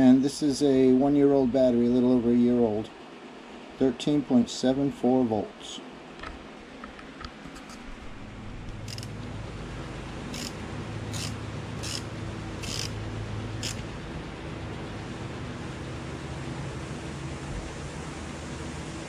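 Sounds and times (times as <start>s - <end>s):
steady low hum: 0.0s - 19.0s
screwdriver metallic scrapes: 8.9s - 9.1s, 10.3s - 12.9s, 13.6s - 13.8s.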